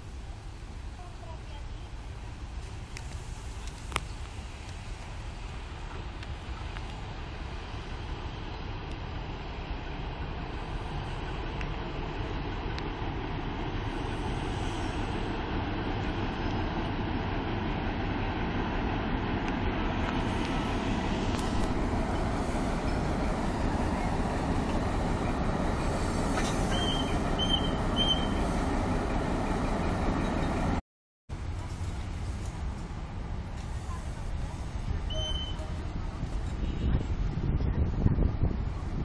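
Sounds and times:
diesel locomotive running: 0.0 - 39.0
short high peeps: 26.7 - 28.4.

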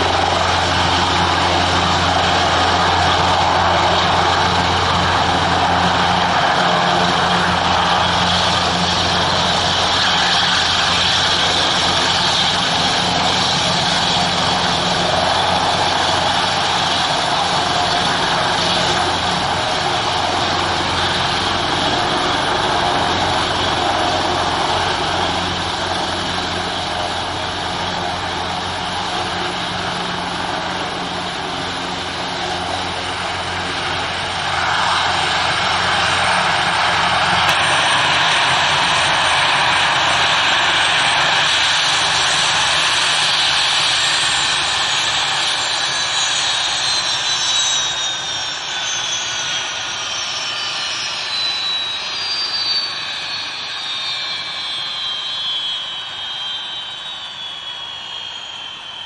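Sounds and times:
helicopter rotor thrum: 0.0 - 49.7
turbine whine: 0.0 - 59.0.

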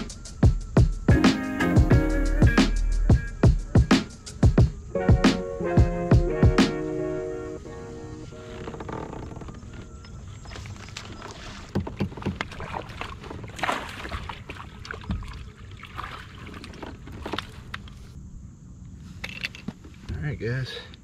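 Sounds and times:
knocks and clicks on kayak: 8.6 - 13.4
wind and water rushing: 10.4 - 17.9.

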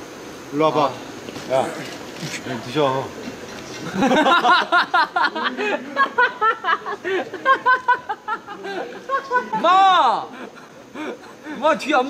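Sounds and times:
men laughing: 3.3 - 11.8.

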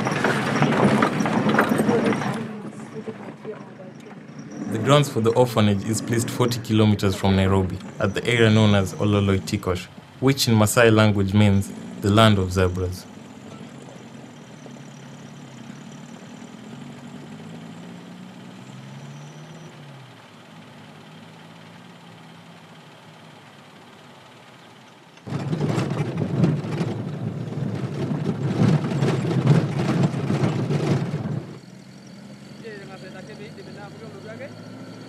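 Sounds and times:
car engine running: 0.0 - 35.0
loud rough rumbling with rattles: 0.0 - 35.0.

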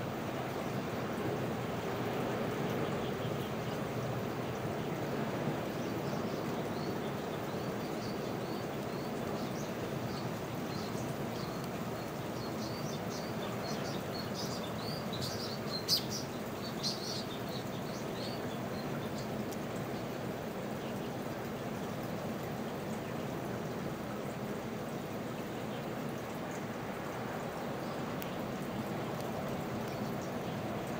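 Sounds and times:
water rushing: 0.0 - 30.9
small birds chirping: 2.5 - 30.9.

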